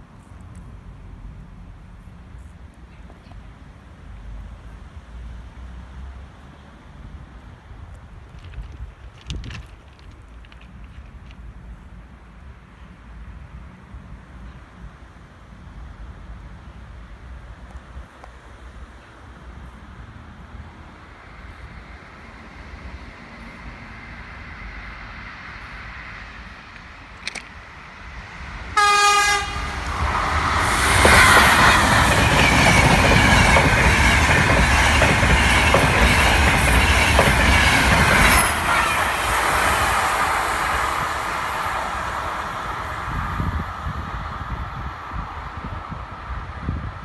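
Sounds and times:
train passing: 0:03.7 - 0:47.0
train horn blast: 0:28.7 - 0:29.9, 0:38.3 - 0:39.4
wheels clacking over rail joints: 0:29.8 - 0:43.1.

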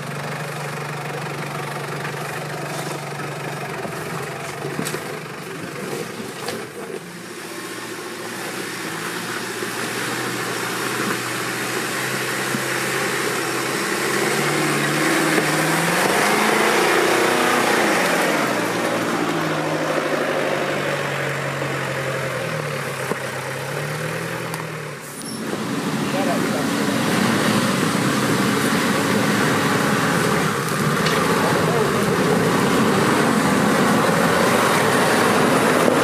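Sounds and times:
engine revving under load: 0:02.3 - 0:36.0
broad rush of noise: 0:24.7 - 0:36.0.

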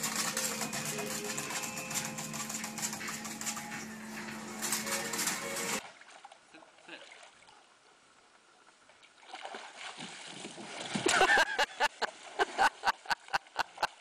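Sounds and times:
water splashing and sloshing: 0:00.0 - 0:14.0
person laughing: 0:11.1 - 0:14.0.

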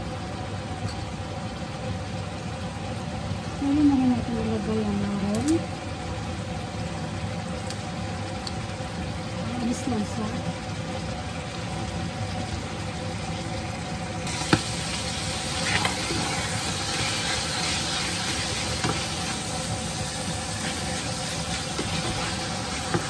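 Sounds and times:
food sizzling in a frying pan: 0:00.0 - 0:23.0
spatula tapping and scraping pan: 0:21.7 - 0:23.0.

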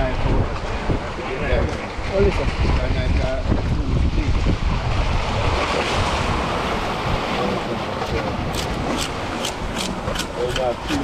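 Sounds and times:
surf washing into rocks: 0:00.0 - 0:11.0
wind on microphone: 0:00.0 - 0:11.0
knife scraping fish scales: 0:08.5 - 0:11.0.

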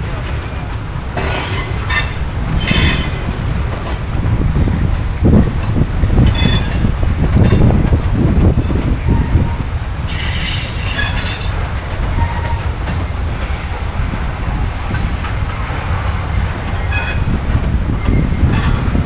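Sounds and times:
train wheels rumbling on rail: 0:00.0 - 0:19.0
metallic wheel squeals: 0:06.3 - 0:06.8, 0:10.1 - 0:11.6, 0:12.2 - 0:12.7, 0:16.8 - 0:17.4.

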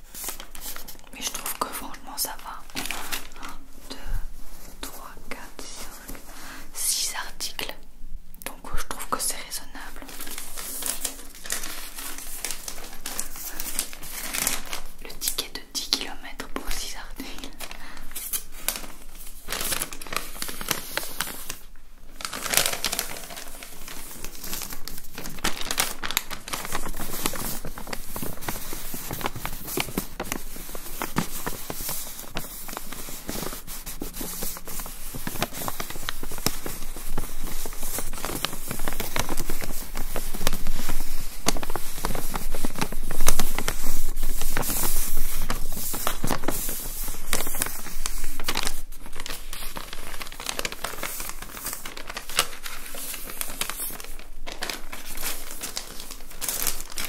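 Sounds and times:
paper receipt crinkling: 0:00.0 - 0:05.2, 0:09.3 - 0:57.0.

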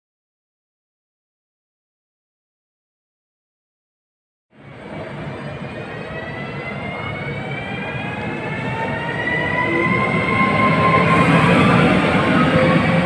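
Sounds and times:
wheels rumbling on rails: 0:04.6 - 0:13.0.

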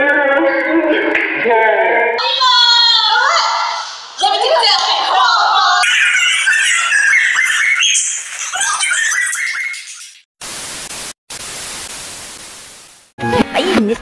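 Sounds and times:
high-pitched shouting voices: 0:02.2 - 0:09.6
tv static hiss: 0:10.4 - 0:13.1
music: 0:13.2 - 0:14.0.

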